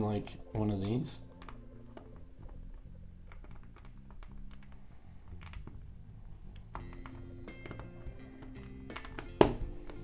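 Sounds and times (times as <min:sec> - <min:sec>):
quiet background music: 0:00.0 - 0:10.0
plastic bricks clicking: 0:01.4 - 0:05.9, 0:06.5 - 0:09.4.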